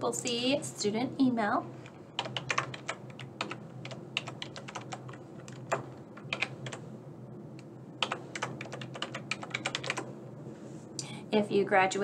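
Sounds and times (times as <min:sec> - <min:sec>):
faint low hum: 0:00.0 - 0:12.0
keyboard typing: 0:01.8 - 0:06.8, 0:08.0 - 0:10.1.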